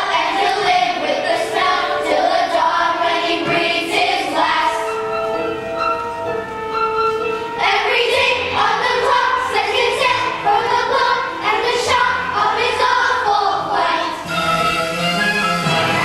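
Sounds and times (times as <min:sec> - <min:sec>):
children singing together: 0:00.0 - 0:05.4, 0:07.5 - 0:14.8
musical accompaniment: 0:00.0 - 0:16.0.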